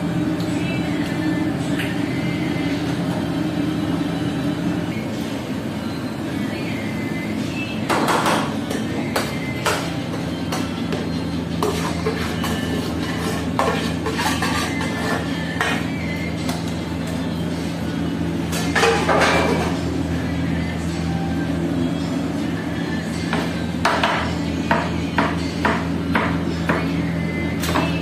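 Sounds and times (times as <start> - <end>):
metal spoon scraping frying pan: 11.6 - 15.9.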